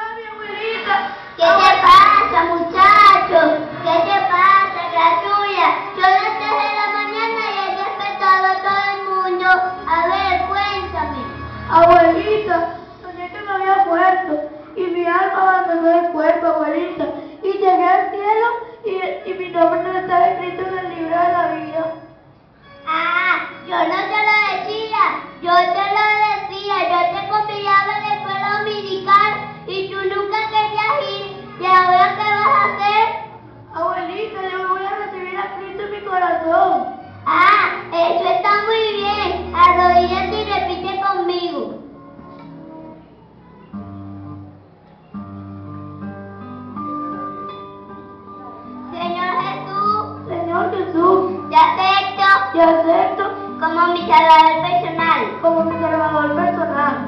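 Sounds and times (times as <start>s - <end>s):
child singing into a microphone: 0.8s - 11.0s.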